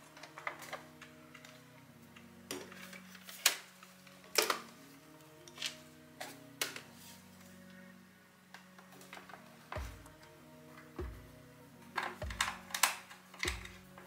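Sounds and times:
soft background music: 0.0s - 14.0s
plastic knocking against a table: 12.2s - 12.7s.

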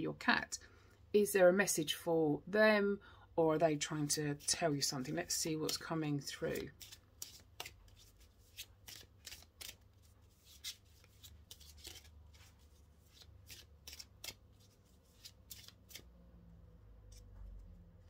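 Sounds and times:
cards being shuffled: 5.6s - 16.1s.

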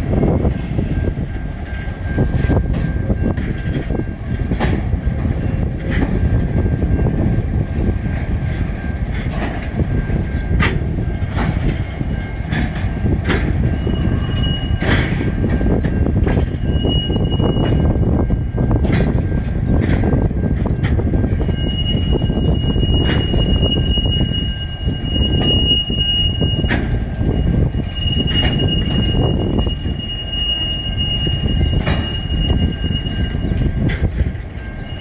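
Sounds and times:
train wheels rumbling on rails: 0.0s - 35.0s
wheel squeal: 11.5s - 18.0s, 21.2s - 35.0s.

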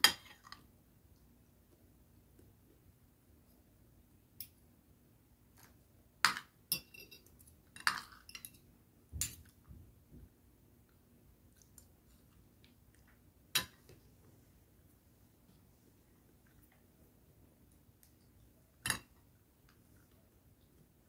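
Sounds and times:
cutlery clinking on a plate: 6.3s - 8.6s.

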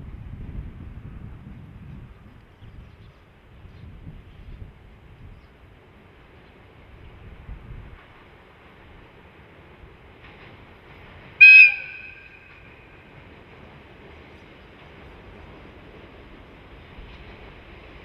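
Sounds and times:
approaching locomotive rumble: 0.0s - 18.0s
diesel locomotive horn blast: 11.4s - 13.2s.

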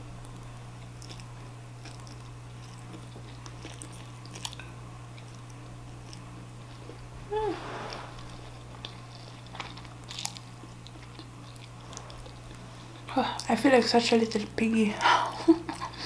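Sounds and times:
steady low hum: 0.0s - 16.0s
person chewing noodles: 0.2s - 7.0s, 8.2s - 13.5s.

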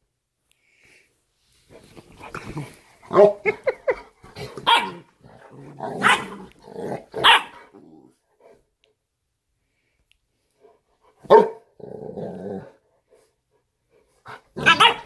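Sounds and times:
puppy barking and growling: 2.3s - 8.2s, 11.2s - 12.7s, 14.3s - 15.0s.

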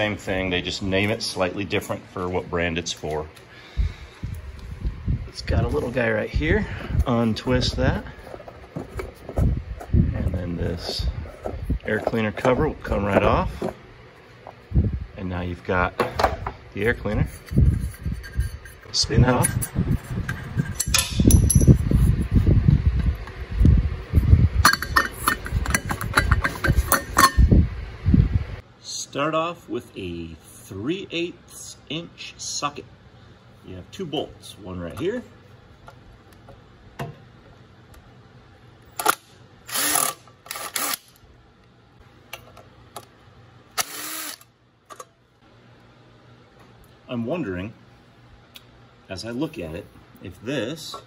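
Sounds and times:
cordless drill bursts: 39.7s - 41.1s, 43.8s - 44.5s.

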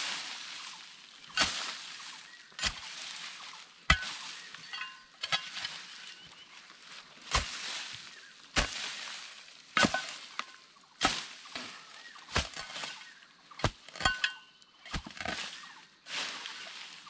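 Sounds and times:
loosened earth rustling: 0.0s - 17.0s
hoe thudding into soil: 9.8s - 10.4s, 12.3s - 12.9s.

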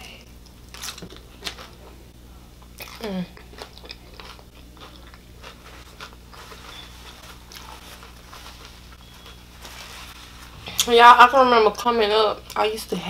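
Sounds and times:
person chewing crunchy pickles: 0.3s - 2.0s, 2.6s - 10.9s.

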